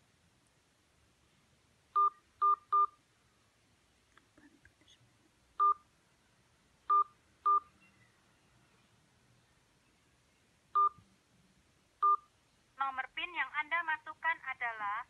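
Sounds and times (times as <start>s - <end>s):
phone keypad beeps: 2.0s - 3.0s, 5.6s - 5.8s, 6.9s - 8.0s, 10.8s - 11.0s, 12.0s - 12.3s.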